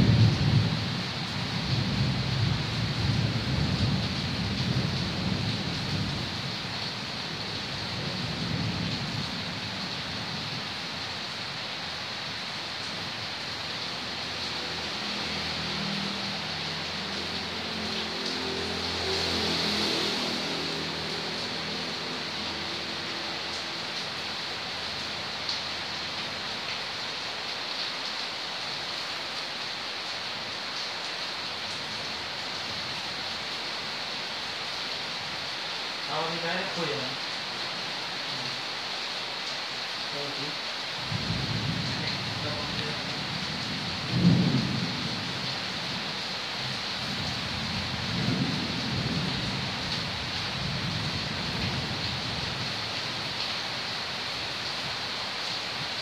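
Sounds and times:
heavy rain: 0:00.0 - 0:56.0
thunder rumbling: 0:41.1 - 0:45.0.

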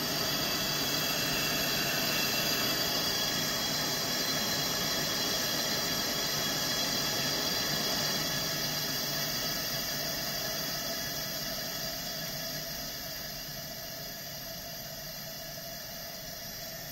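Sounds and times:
camp stove burner rushing: 0:00.0 - 0:11.1.

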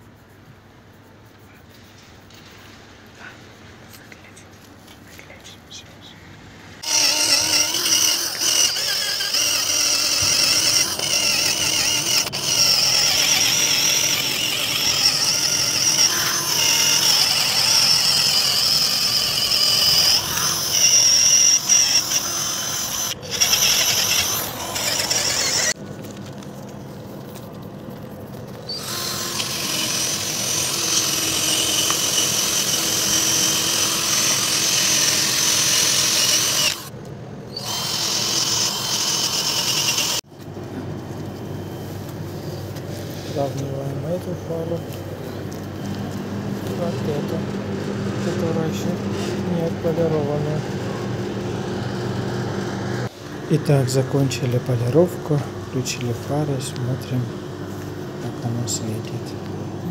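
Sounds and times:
cordless drill high whine: 0:06.8 - 0:25.8, 0:28.7 - 0:36.9, 0:37.5 - 0:40.3.

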